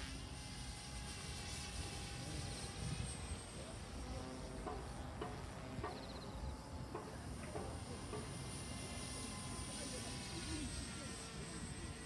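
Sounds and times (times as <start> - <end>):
distant rc helicopter buzzing whine: 0.0 - 12.0.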